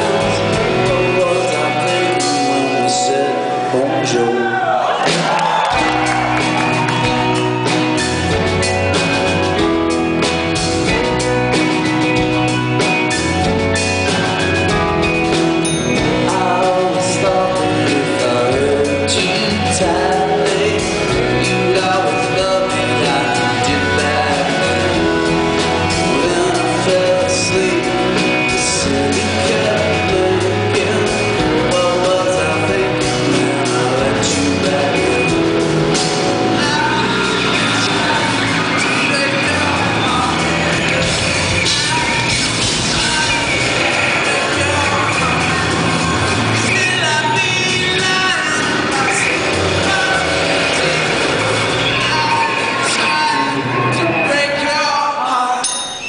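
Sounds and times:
drum kit: 0:00.0 - 0:03.3, 0:04.5 - 0:54.2
man singing: 0:00.0 - 0:04.6, 0:15.9 - 0:56.0.

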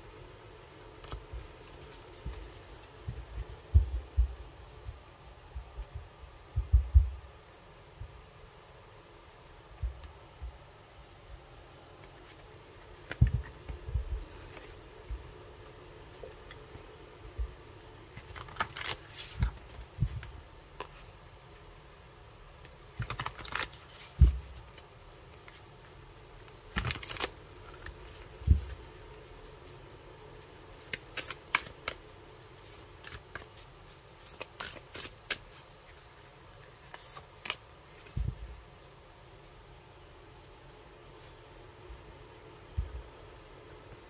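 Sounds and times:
cards shuffling: 0:18.1 - 0:21.2, 0:23.0 - 0:25.6, 0:26.4 - 0:28.9, 0:30.8 - 0:36.0, 0:36.6 - 0:38.4.

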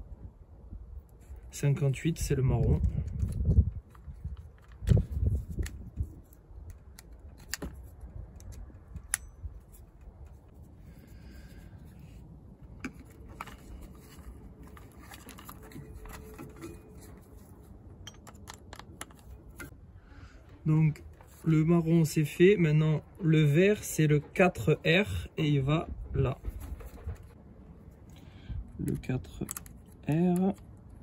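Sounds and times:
screwdriver clicks and scrapes: 0:12.8 - 0:19.7.

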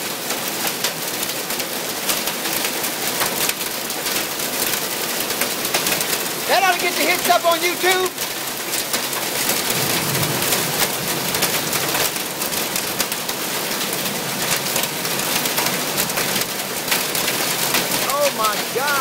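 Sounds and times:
hail and rain on a tin roof: 0:00.0 - 0:19.0.

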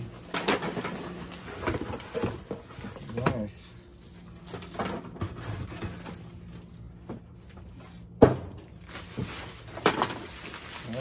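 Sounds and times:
plastic wrap and cardboard rustling: 0:00.0 - 0:06.9, 0:08.5 - 0:11.0.

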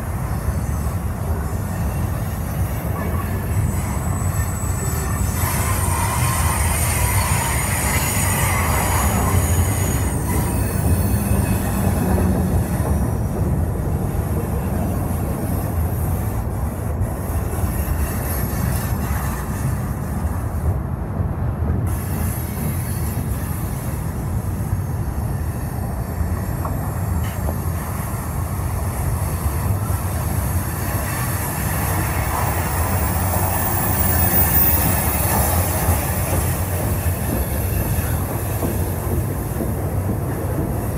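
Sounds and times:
train wheels rumbling on rails: 0:00.0 - 0:40.9.

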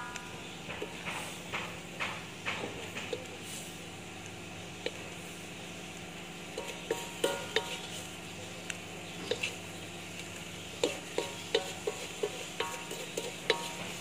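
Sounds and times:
low sizzle: 0:00.0 - 0:14.0
spatula scraping a wok: 0:06.4 - 0:08.3, 0:09.2 - 0:14.0
spatula knocking against pan: 0:06.6 - 0:07.8, 0:10.8 - 0:14.0.

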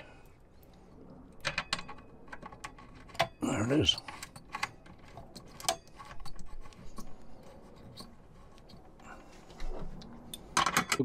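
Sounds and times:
screwdriver clicking and scraping: 0:01.4 - 0:09.1.

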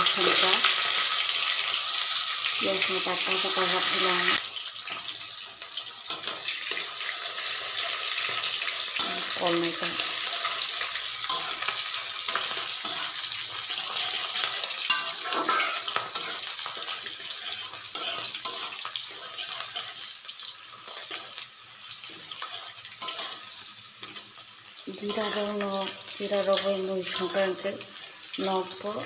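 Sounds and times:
onions sizzling in hot oil: 0:00.0 - 0:29.0
metal spatula clicking on pan: 0:09.0 - 0:09.4, 0:11.2 - 0:13.2, 0:14.4 - 0:16.8, 0:17.9 - 0:18.8, 0:23.0 - 0:23.4.

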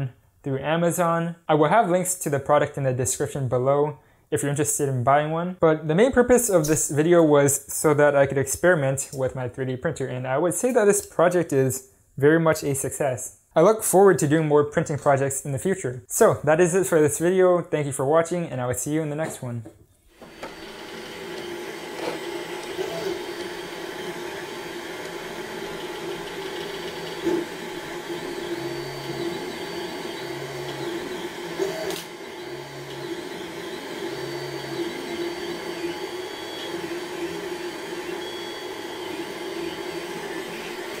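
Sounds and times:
motor and fan hum: 0:20.2 - 0:41.0
stepper motor tones: 0:20.2 - 0:41.0.

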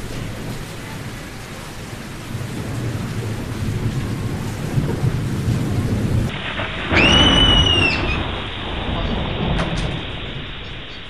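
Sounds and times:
low rumble of thunder: 0:00.0 - 0:11.0
steady rain: 0:00.0 - 0:11.0
high whistle rising in pitch: 0:06.9 - 0:08.4.

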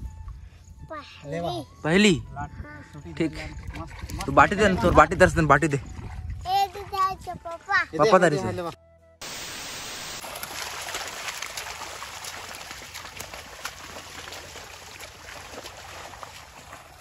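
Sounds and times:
water trickling: 0:10.0 - 0:17.0.

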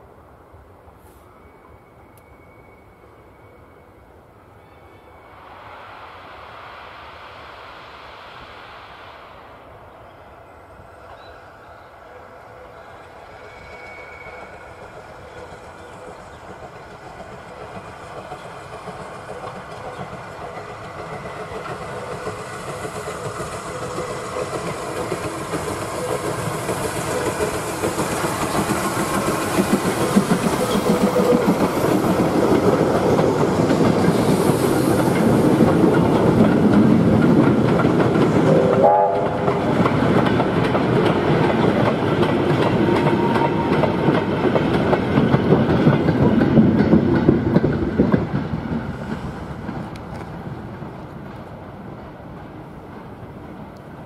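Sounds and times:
steam locomotive working: 0:00.9 - 0:54.0
steam whistle: 0:38.4 - 0:39.6, 0:42.8 - 0:44.1.

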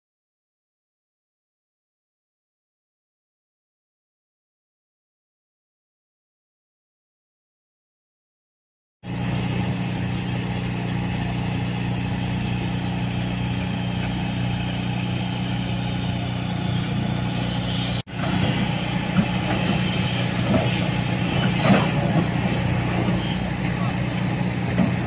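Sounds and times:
diesel machinery engine drone: 0:09.0 - 0:25.0.

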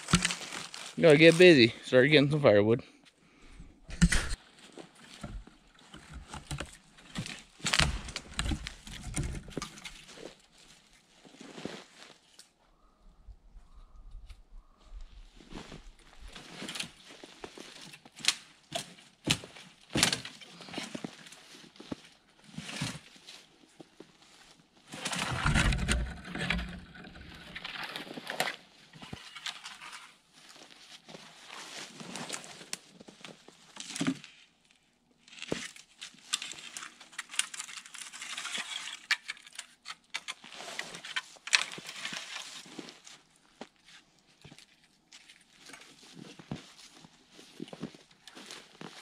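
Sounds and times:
dry branches crunching and snapping: 0:00.0 - 0:01.6, 0:03.9 - 0:10.8, 0:15.8 - 0:21.4, 0:24.9 - 0:30.1, 0:35.2 - 0:43.3
footsteps: 0:00.0 - 0:01.7.

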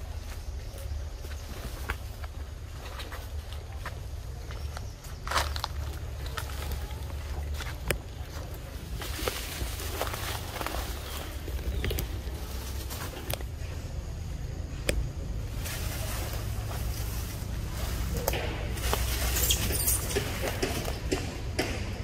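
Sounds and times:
clicks and rustles on tree branch: 0:00.1 - 0:14.0, 0:14.7 - 0:21.8.

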